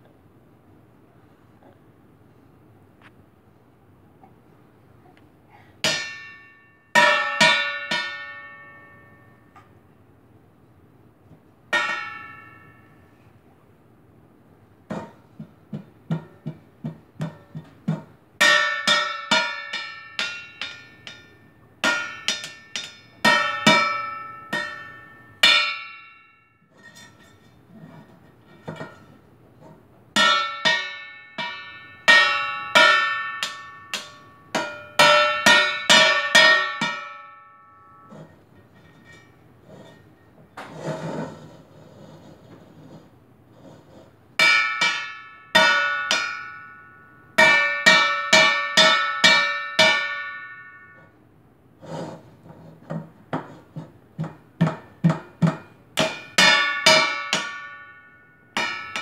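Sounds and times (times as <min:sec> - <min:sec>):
spoon clanging on steel pot: 0:18.4 - 0:26.0, 0:30.2 - 0:37.3, 0:54.2 - 0:59.0.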